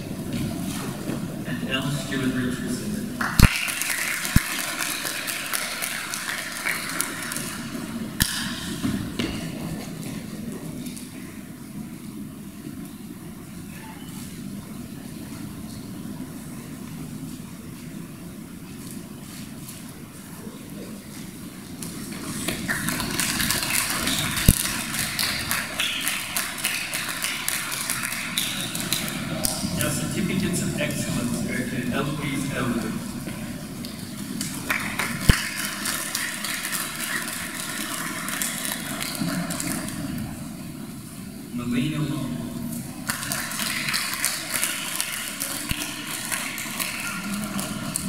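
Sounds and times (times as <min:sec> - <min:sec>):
audience clapping: 0:03.1 - 0:10.2, 0:21.8 - 0:29.8, 0:32.3 - 0:40.3, 0:43.0 - 0:48.0.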